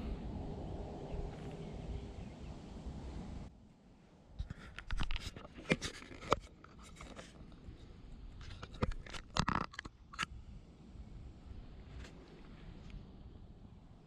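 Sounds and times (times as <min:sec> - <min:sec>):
handling clicks knocks and scrapes: 0:04.4 - 0:07.6, 0:08.4 - 0:10.3.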